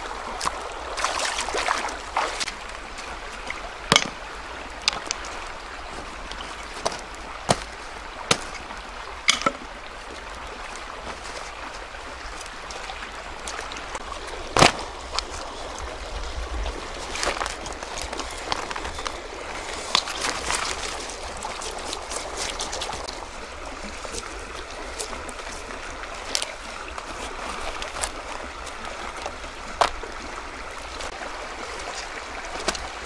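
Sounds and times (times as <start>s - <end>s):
splashing water: 0.0s - 33.0s
stream running over stones: 0.0s - 33.0s
sharp knocks: 3.9s - 4.2s.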